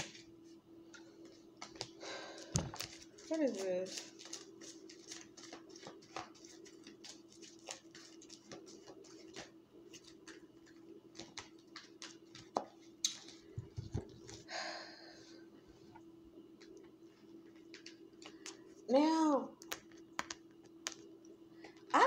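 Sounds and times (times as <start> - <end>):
cards rustling: 1.6 - 14.4
cards flicking and clicking: 19.6 - 21.1.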